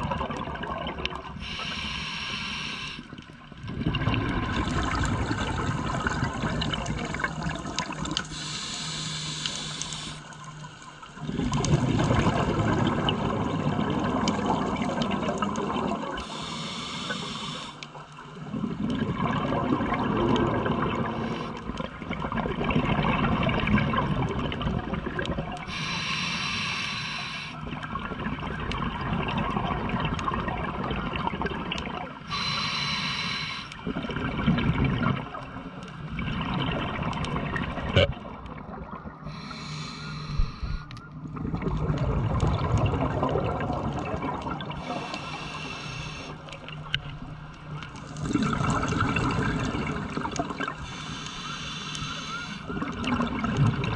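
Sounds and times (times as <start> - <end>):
exhaled bubbles: 0.0 - 1.7, 3.2 - 16.5, 18.3 - 26.0, 27.1 - 53.9
regulator inhale hiss: 1.4 - 3.2, 8.3 - 10.4, 16.2 - 17.8, 21.2 - 21.6, 25.7 - 27.6, 32.3 - 33.8, 39.3 - 40.9, 44.8 - 46.5, 50.8 - 52.7.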